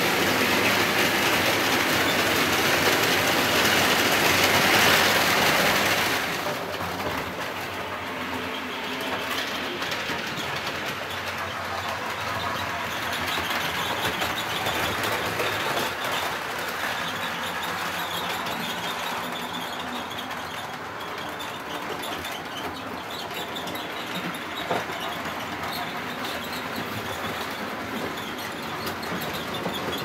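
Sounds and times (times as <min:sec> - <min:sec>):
model train running rumble: 0:00.0 - 0:30.0
wheels clicking over rail joints: 0:00.0 - 0:30.0.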